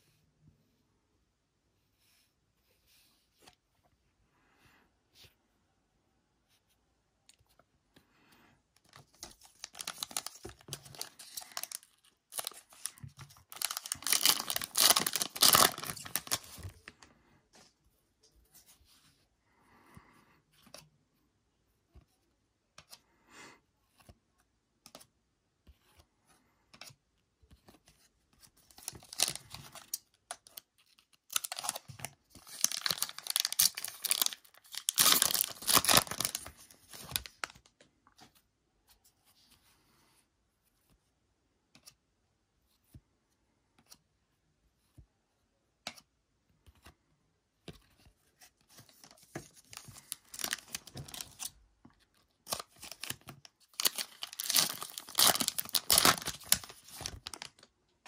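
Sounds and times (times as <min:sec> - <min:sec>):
cards clicking and rustling: 0:08.8 - 0:16.8, 0:28.7 - 0:37.7, 0:48.7 - 0:51.5, 0:52.4 - 0:57.6
foil wrapper tearing and crinkling: 0:09.6 - 0:16.6, 0:28.9 - 0:29.5, 0:31.3 - 0:37.5, 0:49.8 - 0:51.5, 0:52.5 - 0:57.6.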